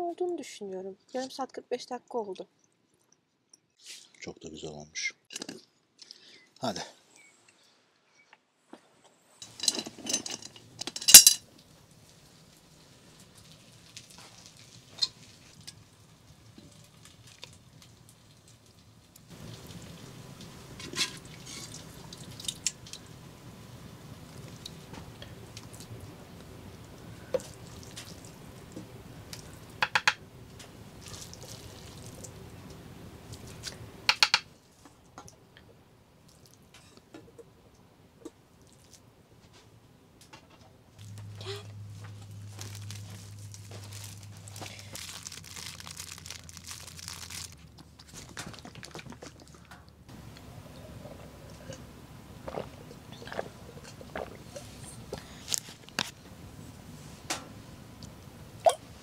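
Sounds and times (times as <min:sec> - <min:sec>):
low steady hum: 0:09.2 - 0:59.0
metal pot and lid clanking: 0:09.4 - 0:11.4
utensils clinking against pot: 0:09.4 - 0:11.4.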